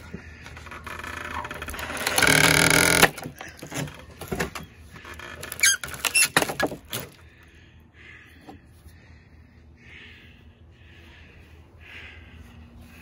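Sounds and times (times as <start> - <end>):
wood creaking and cracking: 0.0 - 7.2
nails squealing: 0.6 - 4.1, 5.0 - 6.7.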